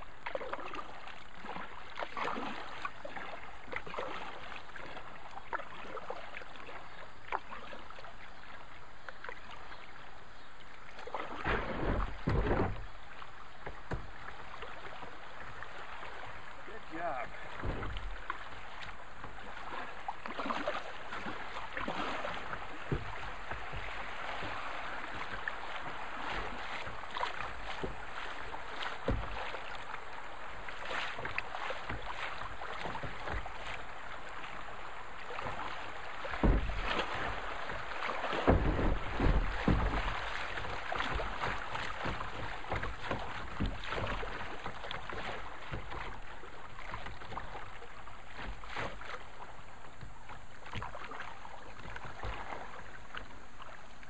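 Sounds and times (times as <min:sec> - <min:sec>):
river water rushing and splashing: 0:00.0 - 0:54.0
small water slaps: 0:00.0 - 0:54.0
low thumps: 0:17.6 - 0:18.2.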